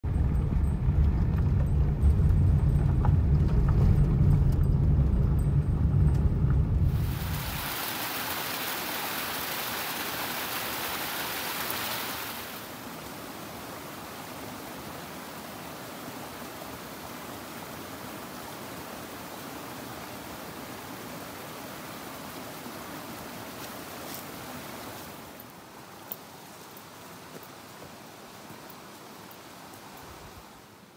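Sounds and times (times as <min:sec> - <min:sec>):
vehicle driving rumble: 0:00.0 - 0:07.7
stream rushing over rocks: 0:06.9 - 0:30.9.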